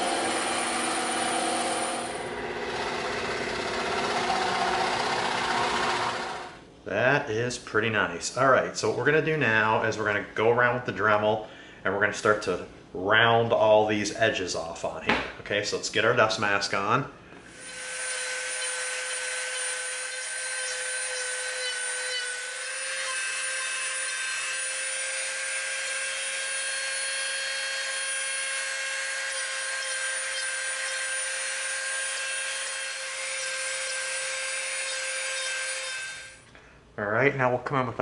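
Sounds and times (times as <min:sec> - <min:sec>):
rotary tool sanding whine: 0:00.0 - 0:06.6, 0:17.5 - 0:36.4.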